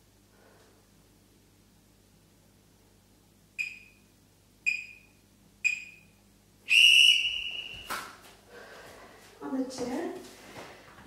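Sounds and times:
timer beeps: 3.6s - 4.0s, 4.7s - 6.1s.

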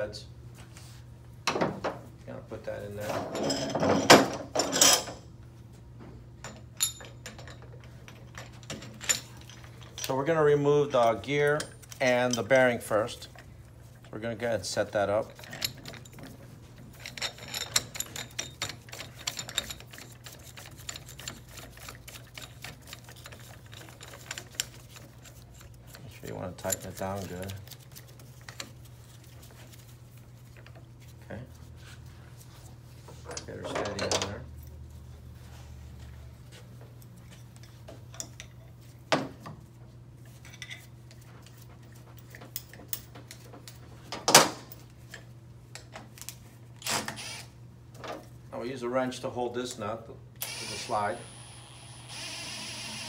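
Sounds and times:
metal tools clicking and clattering: 3.0s - 5.2s, 15.2s - 27.8s.

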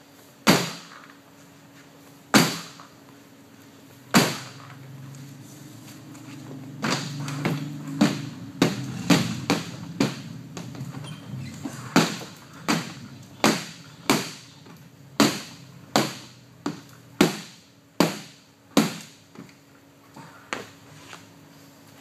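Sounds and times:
feet stomping on metal: 6.8s - 11.0s, 11.7s - 19.2s.

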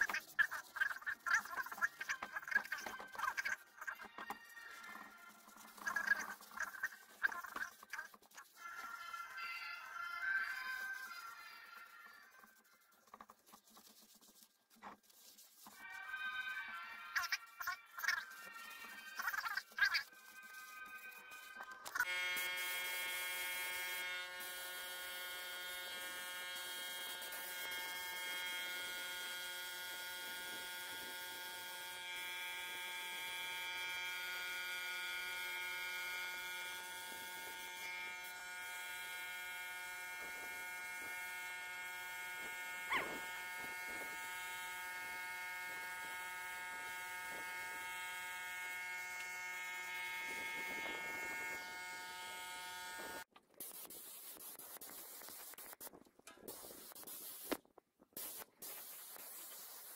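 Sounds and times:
electric motor buzz: 15.8s - 53.3s
spray gun hissing: 56.5s - 57.6s, 58.2s - 59.9s.

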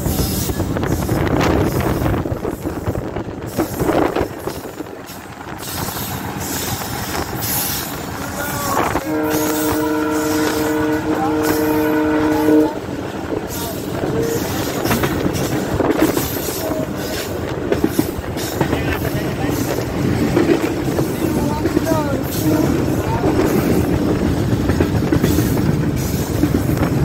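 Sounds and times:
wheels on track: 0.0s - 27.0s
wind: 0.0s - 27.0s
locomotive air horn: 8.8s - 13.2s, 13.8s - 15.0s.

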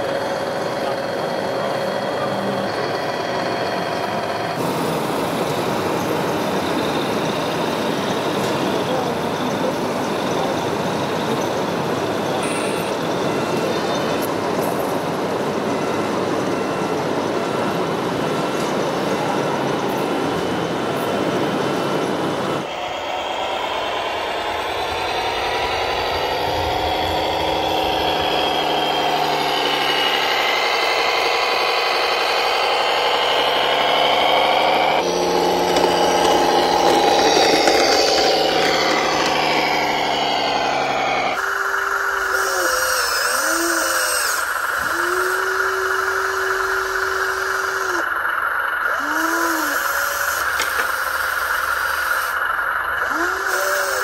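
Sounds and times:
small electric motor whine: 0.0s - 54.0s
short whistle-like tones: 41.4s - 54.0s
steady hiss: 41.4s - 54.0s.

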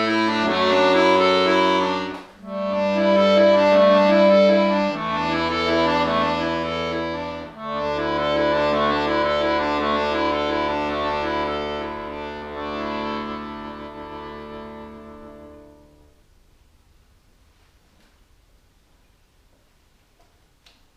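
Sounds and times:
button accordion chords: 0.0s - 16.2s.

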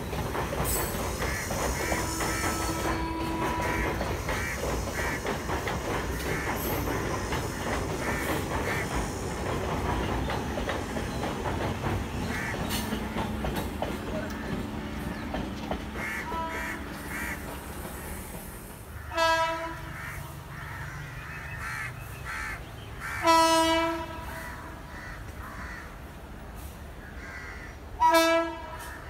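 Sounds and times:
wheels clattering over rail joints: 0.0s - 18.8s
train rumbling over bridge: 0.0s - 29.0s.

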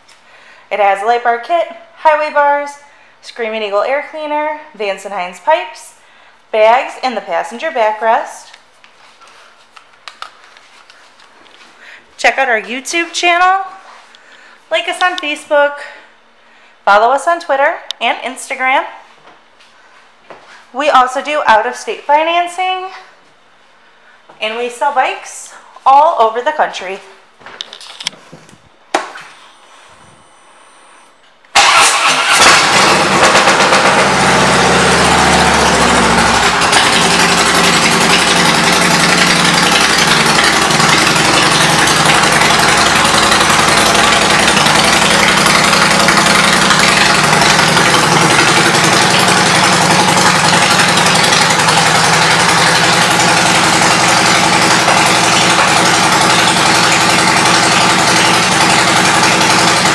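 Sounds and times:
motorcycle engine starting and idling: 30.9s - 59.9s.

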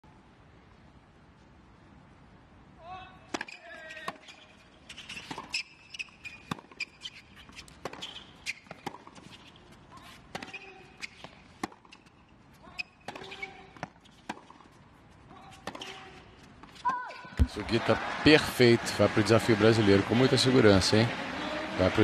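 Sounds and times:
racquets striking ball: 3.3s - 4.4s, 13.0s - 14.6s, 15.5s - 16.2s, 16.8s - 17.8s
sneaker squeaks on court: 3.4s - 14.2s
ball bouncing: 16.9s - 17.7s.

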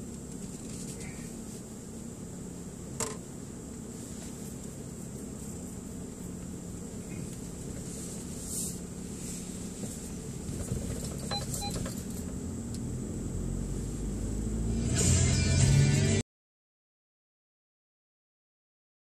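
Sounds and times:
car engine and road rumble: 0.0s - 16.2s
short beeps: 11.3s - 11.8s.

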